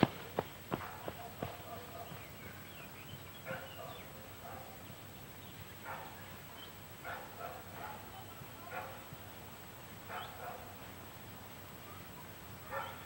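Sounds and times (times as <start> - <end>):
faint dog barking: 0.2 - 2.7, 3.4 - 4.9, 5.8 - 9.1, 10.1 - 10.9, 11.8 - 13.0.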